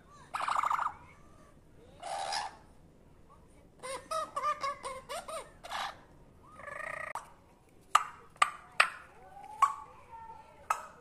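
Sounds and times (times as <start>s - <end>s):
parrot chattering calls: 0.3s - 1.0s, 2.0s - 2.6s, 3.8s - 6.0s.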